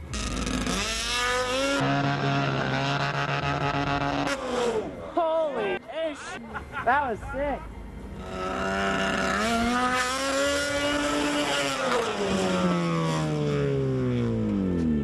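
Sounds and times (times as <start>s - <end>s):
snowmobile engine revving: 0.0s - 5.1s, 8.2s - 15.0s.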